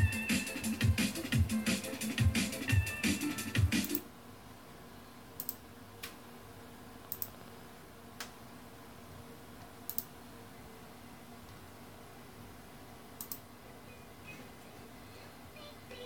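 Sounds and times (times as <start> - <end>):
electronic music: 0.0 - 4.0
computer mouse clicks: 5.4 - 6.2, 7.1 - 7.4, 9.9 - 10.1, 13.2 - 13.5.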